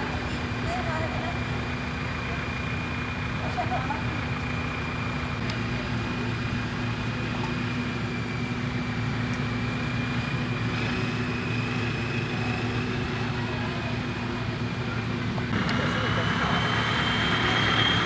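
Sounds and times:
motor humming with whine: 0:15.3 - 0:18.0.

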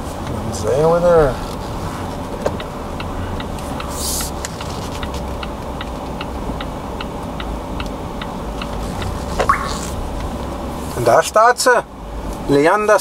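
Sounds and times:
turn signal ticking: 0:02.1 - 0:10.8.

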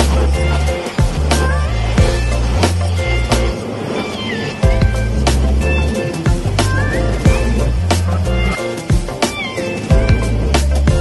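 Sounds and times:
deep bass notes: 0:00.0 - 0:03.6, 0:04.7 - 0:08.6, 0:09.9 - 0:11.0
electronic music with regular beat: 0:00.0 - 0:03.6, 0:04.6 - 0:11.0.

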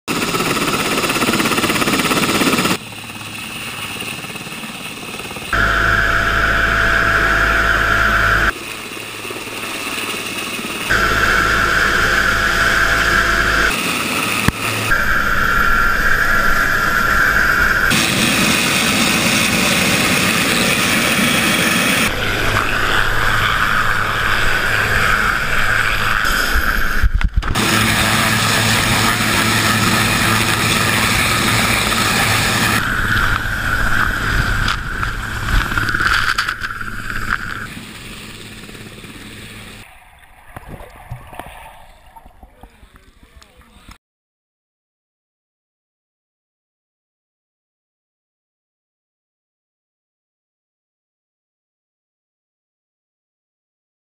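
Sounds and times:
helicopter rotors and engines: 0:00.1 - 0:40.1.

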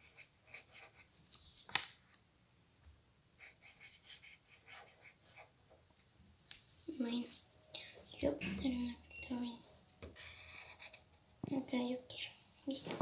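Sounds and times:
marker scratching on paper: 0:00.0 - 0:01.8, 0:03.4 - 0:05.6, 0:10.5 - 0:11.1.

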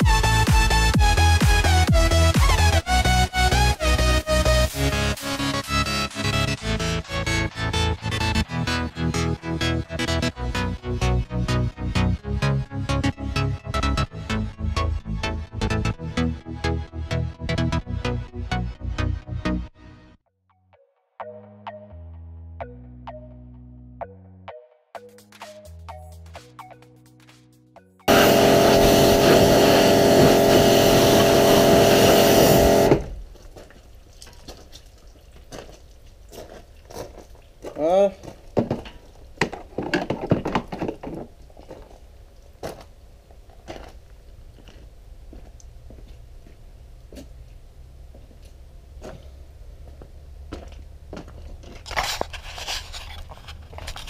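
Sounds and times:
pressure washer spraying: 0:28.1 - 0:33.2
footsteps crunching on gravel: 0:33.1 - 0:39.9, 0:40.9 - 0:47.4, 0:48.1 - 0:54.0
faint clicks and drips: 0:33.5 - 0:39.3.

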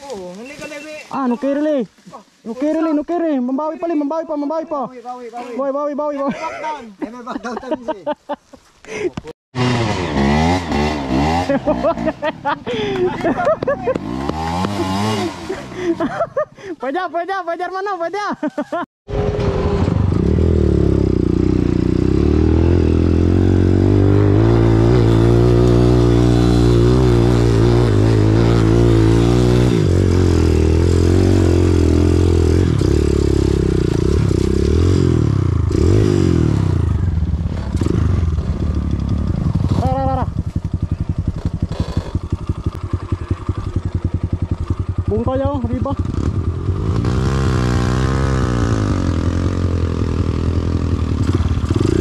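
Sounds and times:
dirt bike engine revving: 0:09.6 - 0:16.2, 0:19.1 - 0:52.0.

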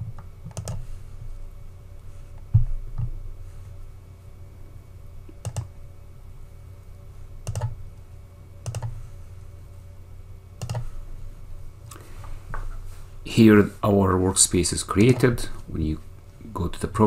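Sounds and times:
low steady hum: 0:00.0 - 0:17.0
computer mouse clicks: 0:00.1 - 0:00.9, 0:05.3 - 0:05.7, 0:07.4 - 0:07.8, 0:08.6 - 0:09.0, 0:10.6 - 0:10.9.

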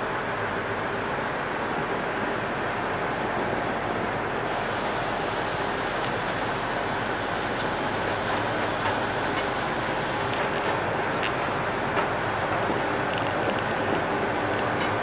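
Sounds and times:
faint low ship engine drone: 0:00.0 - 0:15.0
water rushing: 0:00.0 - 0:15.0
wind: 0:00.0 - 0:15.0.

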